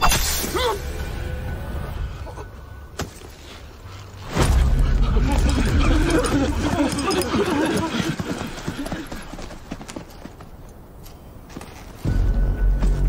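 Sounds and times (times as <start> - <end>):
running footsteps: 4.8 - 12.1.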